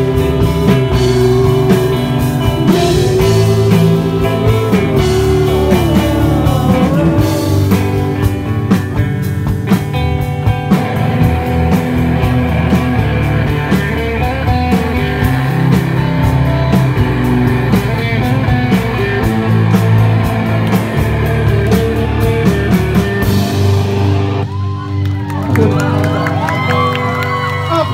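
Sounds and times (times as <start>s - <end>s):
person singing: 0.0s - 8.8s
drums: 0.0s - 27.9s
electric guitar: 0.0s - 27.9s.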